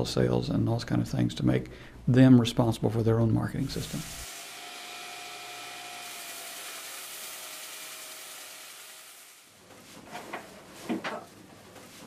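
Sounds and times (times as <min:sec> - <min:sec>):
scroll saw cutting wood: 0:03.6 - 0:09.5.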